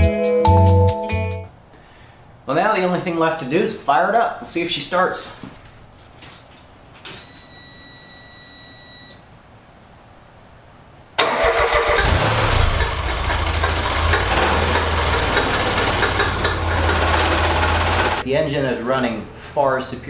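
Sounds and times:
engine starting and idling: 11.2s - 18.2s.

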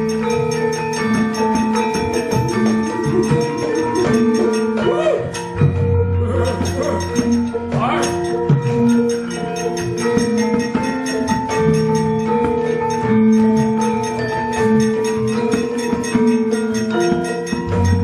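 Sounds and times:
metallophones and gongs ringing: 0.0s - 18.0s.

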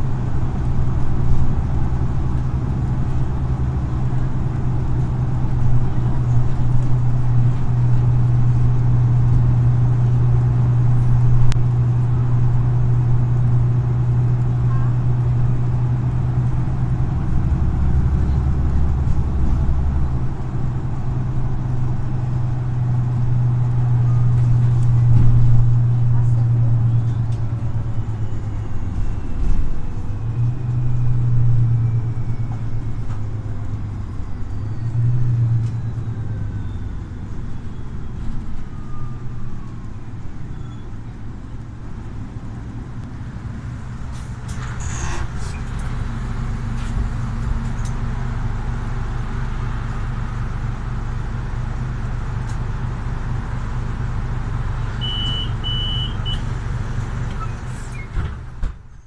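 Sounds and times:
bus engine drone: 0.0s - 59.0s
short high beeps: 55.0s - 56.4s.

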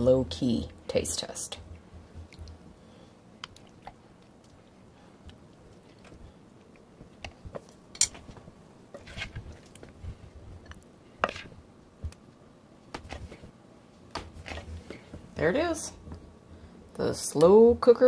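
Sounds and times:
soft wet scooping: 3.4s - 11.6s.

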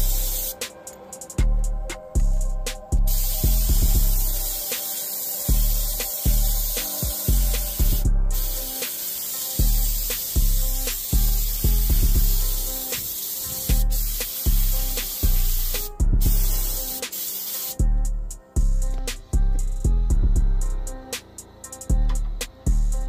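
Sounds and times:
paint spray gun hissing: 0.0s - 0.8s, 3.1s - 17.8s
music with heavy bass beat: 0.0s - 23.0s.

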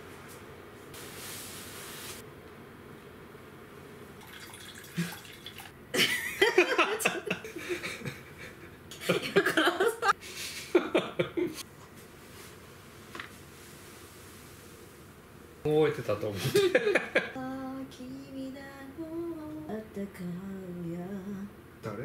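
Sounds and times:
drink trickling into a tumbler: 4.2s - 5.7s.

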